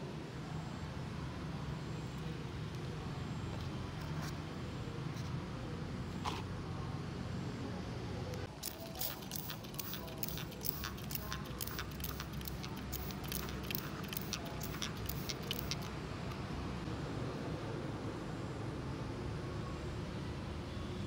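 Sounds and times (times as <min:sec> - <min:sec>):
light clicks and ticks: 0:08.3 - 0:16.4.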